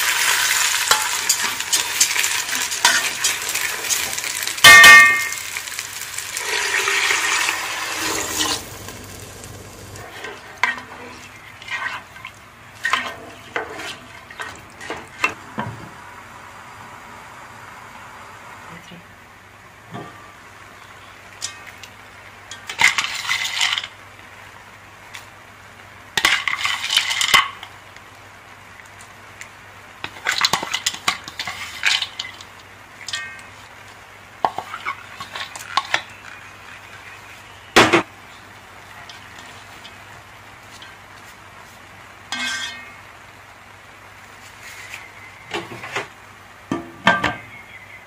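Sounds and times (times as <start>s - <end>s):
nuts and seeds rattling into pot: 0.0s - 10.0s.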